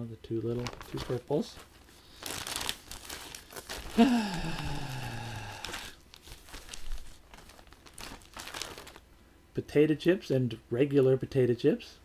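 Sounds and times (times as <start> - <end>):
chip bags crinkling: 0.3 - 9.1.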